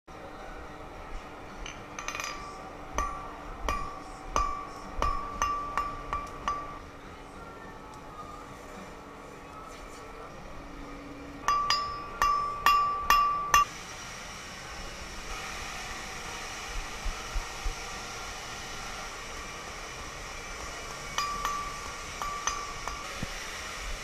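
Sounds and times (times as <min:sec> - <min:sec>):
hammer blows on steel anvil: 0:01.6 - 0:06.9, 0:11.4 - 0:13.7, 0:20.8 - 0:24.0.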